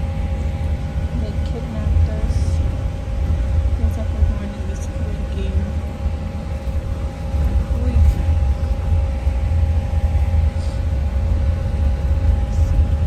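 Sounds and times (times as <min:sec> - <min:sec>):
faint steady hum: 0:00.0 - 0:13.0
vehicle rumble from inside cabin: 0:00.0 - 0:13.0.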